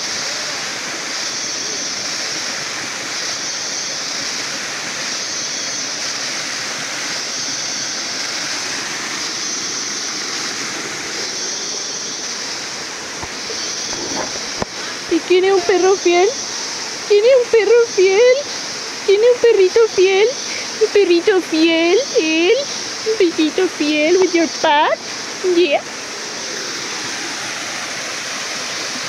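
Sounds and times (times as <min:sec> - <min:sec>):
waterfall pouring into pool: 0:00.0 - 0:17.1, 0:24.9 - 0:29.0
high hiss: 0:00.0 - 0:29.0.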